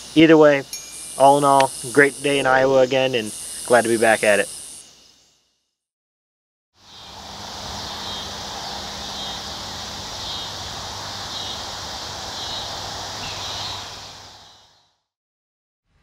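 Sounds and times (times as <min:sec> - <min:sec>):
chorus of insects: 0:00.0 - 0:05.4, 0:06.8 - 0:14.8
soft chirp: 0:00.7 - 0:02.0.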